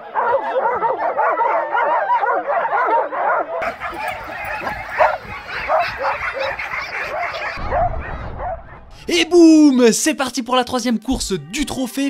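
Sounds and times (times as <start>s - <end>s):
dogs yelping and whining: 3.6s - 8.7s
low rumble: 7.6s - 9.1s.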